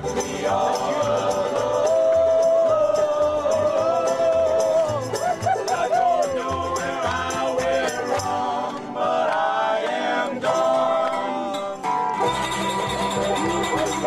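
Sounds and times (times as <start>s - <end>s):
low bass line: 0.0s - 8.7s, 11.6s - 14.0s
voices singing together: 0.0s - 12.0s
strummed acoustic guitars: 0.0s - 14.0s.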